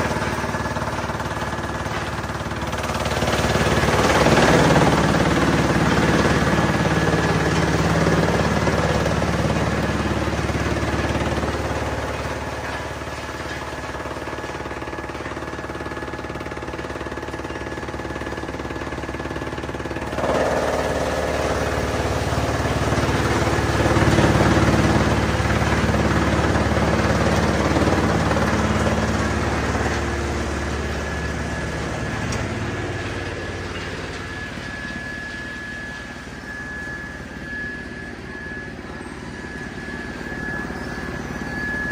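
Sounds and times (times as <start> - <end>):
wood chipper chipping branches: 0.0 - 41.9
thin high whine: 21.4 - 41.9.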